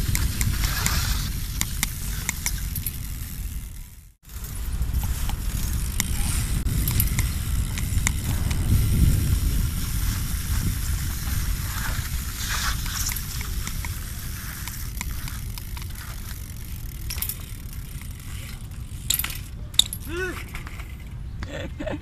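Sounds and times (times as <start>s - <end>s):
light clicks from bike: 0.0s - 3.9s, 11.2s - 21.1s
bike tyres rolling on wet stone: 0.0s - 19.8s.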